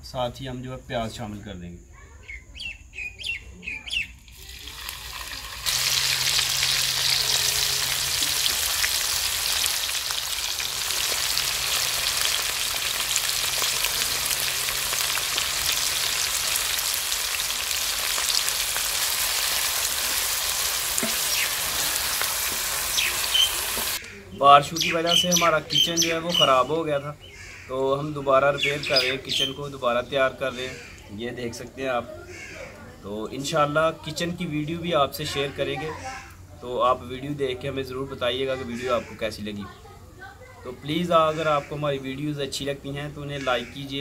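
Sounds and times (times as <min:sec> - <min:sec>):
onions sizzling in hot oil: 0:04.3 - 0:24.1
wooden spatula stirring: 0:20.9 - 0:22.7.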